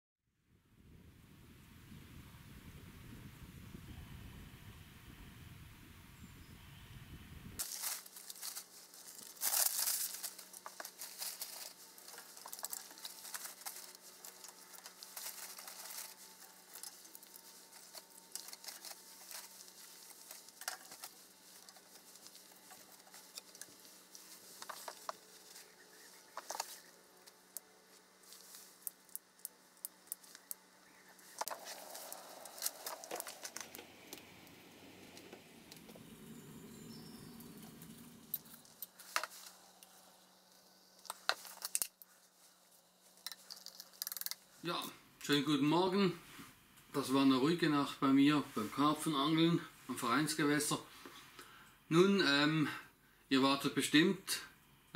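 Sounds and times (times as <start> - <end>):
newspaper crumpling: 7.6 - 26.9, 31.2 - 33.8
twigs clicking: 7.6 - 34.6, 37.4 - 42.1, 43.0 - 44.4.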